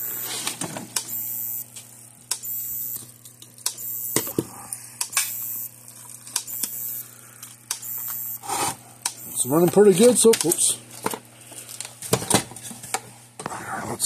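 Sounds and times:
low mains hum: 0.0 - 14.0
electric fence energizer clicks: 0.2 - 4.3, 5.0 - 10.7.

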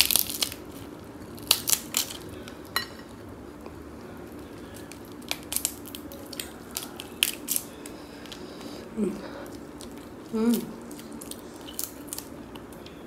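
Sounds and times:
crab shell cracking: 0.0 - 0.8, 1.4 - 2.6, 4.8 - 8.4, 10.9 - 12.9.

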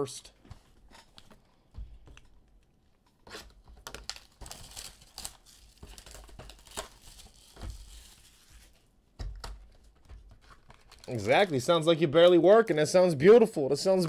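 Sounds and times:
plastic shrink wrap crinkling: 3.4 - 8.9, 9.6 - 11.9.

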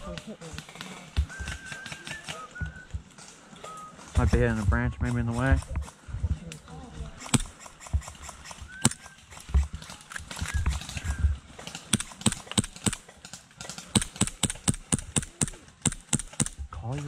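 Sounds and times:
airsoft gun firing single shots: 7.2 - 9.7, 11.6 - 16.6.

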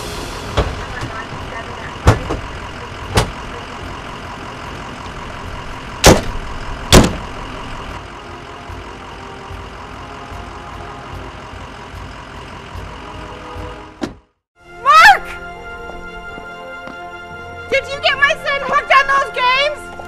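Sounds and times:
engine idling: 0.0 - 14.2
car door slams: 0.5 - 1.2, 2.0 - 2.5, 3.1 - 3.4, 6.0 - 7.3, 14.0 - 14.3.

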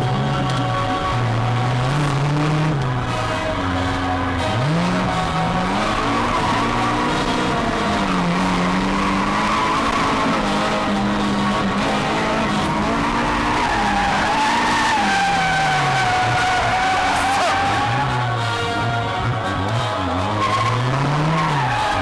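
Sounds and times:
car engine revving: 0.0 - 22.0.

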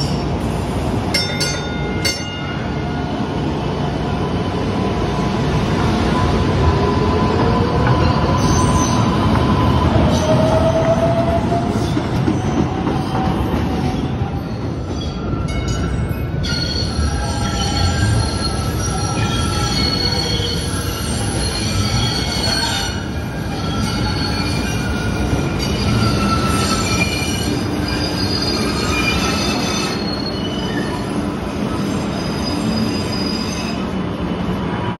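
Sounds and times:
train wheels squealing on rails: 0.0 - 0.8, 2.6 - 34.7
train rumble: 0.0 - 33.0.

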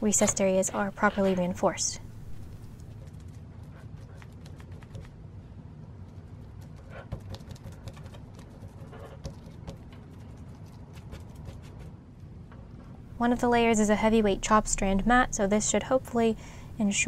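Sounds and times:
low background rumble: 0.0 - 7.0, 12.0 - 17.0.

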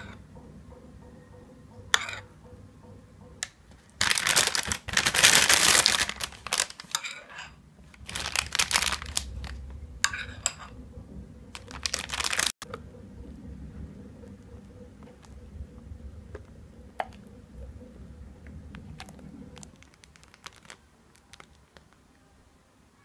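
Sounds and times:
plastic bag crinkling: 4.0 - 7.0, 7.9 - 9.6, 11.5 - 12.6, 19.0 - 22.0.

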